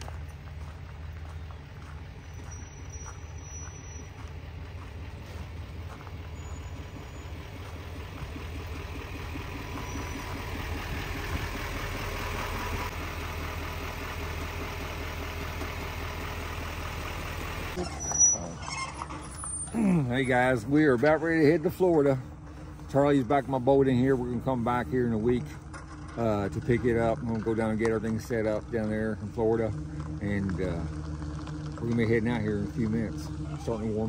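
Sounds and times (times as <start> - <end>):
light footsteps: 0.0 - 8.9
pickup engine idling: 0.0 - 34.0.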